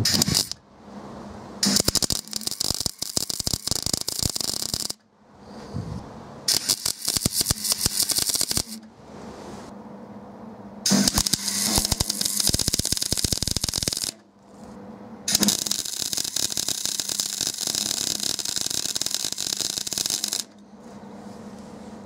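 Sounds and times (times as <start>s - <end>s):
welding crackle: 0.0s - 0.6s, 1.6s - 5.0s, 6.5s - 8.8s, 10.9s - 14.2s, 15.3s - 20.6s.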